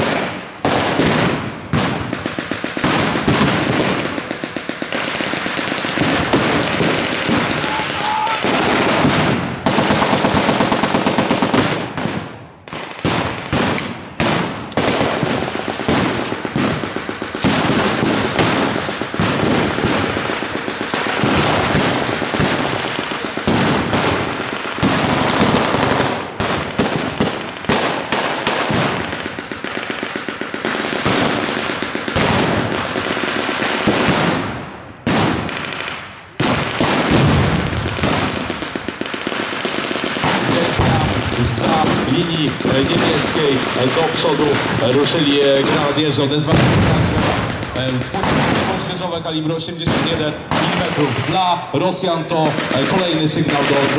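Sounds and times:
single rifle shots: 0:00.0 - 0:29.4, 0:33.6 - 0:49.1, 0:49.7 - 0:51.4
machine-gun bursts: 0:02.4 - 0:12.0.

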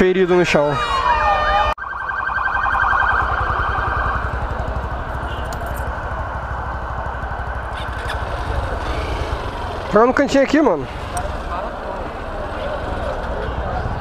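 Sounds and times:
siren warbling: 0:00.7 - 0:04.8
motorcycle engine running: 0:03.0 - 0:14.0.

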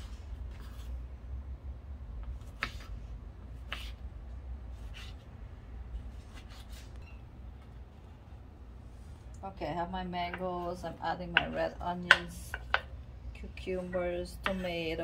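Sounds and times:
steady low hum: 0:00.0 - 0:15.0
knife cutting tomato on board: 0:02.2 - 0:03.0.

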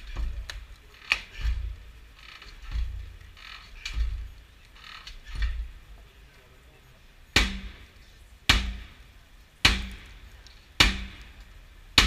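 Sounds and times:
metal scraping and creaking: 0:00.0 - 0:06.4.

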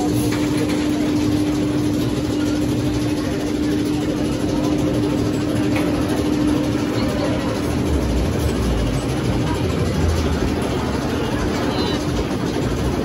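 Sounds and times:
roller coaster machinery hum: 0:00.0 - 0:13.0.

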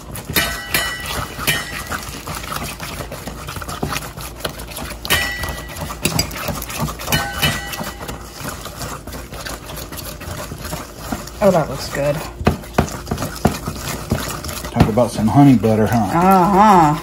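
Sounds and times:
spoon scraping metal bowl: 0:00.0 - 0:17.0
spoon clinking bowl ringing: 0:05.1 - 0:06.3, 0:07.1 - 0:08.2.

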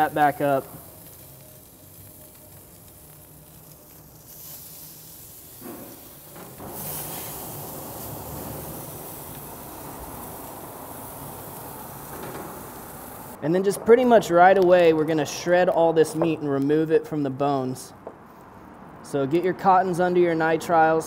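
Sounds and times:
chicken skins sizzling on grill: 0:00.0 - 0:13.4.

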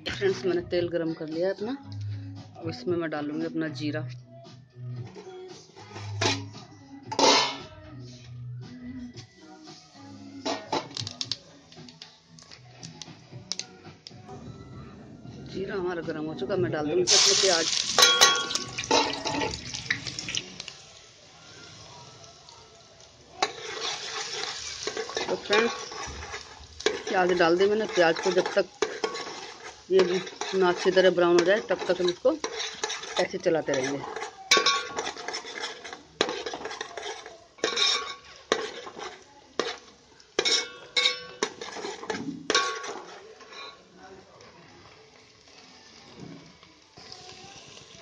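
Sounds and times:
onion sizzling in hot oil: 0:17.0 - 0:48.0
metal spoon scraping steel pan: 0:23.4 - 0:43.8.

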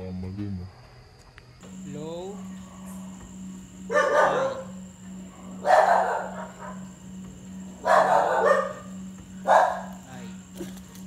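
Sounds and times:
small dog barking: 0:03.8 - 0:07.0, 0:07.7 - 0:10.8.

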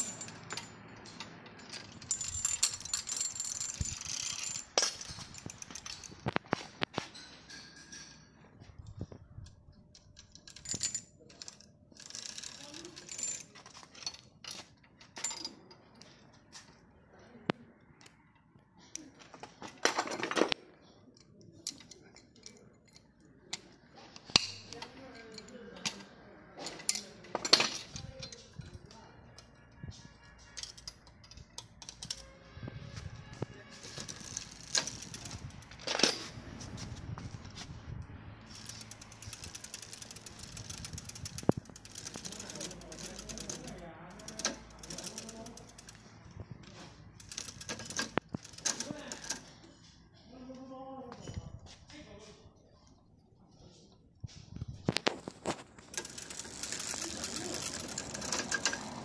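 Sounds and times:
bicycle chain rattling: 0:00.0 - 0:06.5, 0:08.8 - 0:16.2, 0:24.4 - 0:32.5, 0:33.1 - 0:37.6, 0:38.4 - 0:49.7, 0:54.9 - 0:59.0
sharp metallic clicks: 0:38.4 - 0:46.5, 0:54.9 - 0:59.0.

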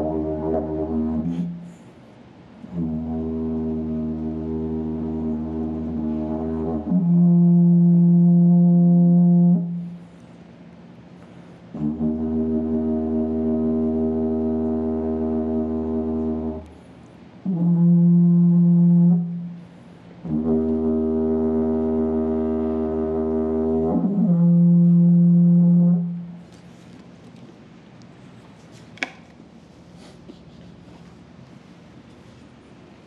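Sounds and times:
didgeridoo drone: 0:00.0 - 0:01.8, 0:02.7 - 0:16.8, 0:17.4 - 0:26.7
didgeridoo high-pitched toot: 0:00.0 - 0:01.8, 0:02.7 - 0:10.0, 0:11.7 - 0:16.7, 0:17.4 - 0:26.4.

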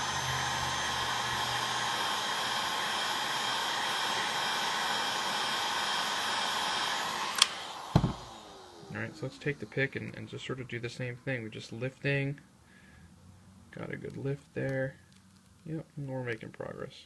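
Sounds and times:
heat gun blowing: 0:00.0 - 0:10.7.

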